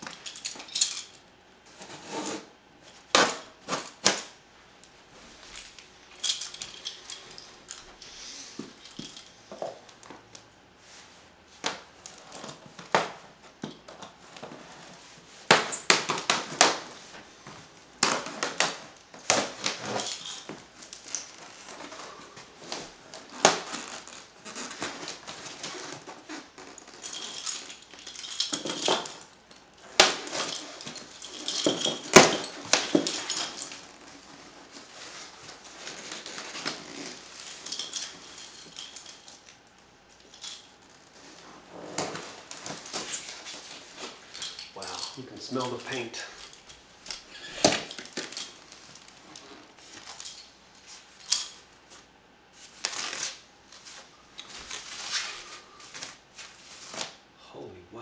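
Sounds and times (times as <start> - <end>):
plastic wrap crinkling and ripping: 18.0 - 27.0, 52.6 - 57.2.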